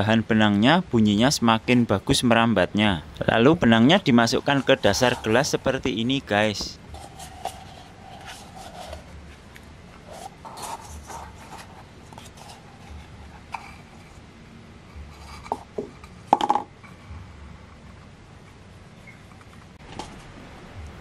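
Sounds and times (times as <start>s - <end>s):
paper cup and string handling: 4.2s - 14.2s, 15.0s - 17.0s.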